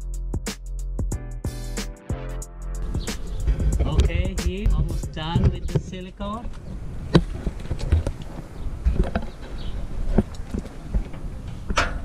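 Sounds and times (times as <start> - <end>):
low rumble: 2.8 - 7.7.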